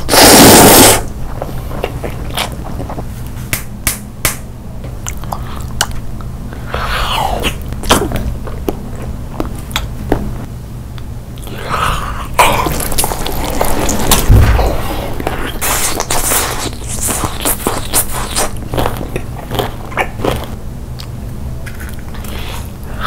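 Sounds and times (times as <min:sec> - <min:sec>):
steady low hum: 0:00.0 - 0:23.0
chewing with wet mouth clicks: 0:05.0 - 0:06.3, 0:17.1 - 0:22.4.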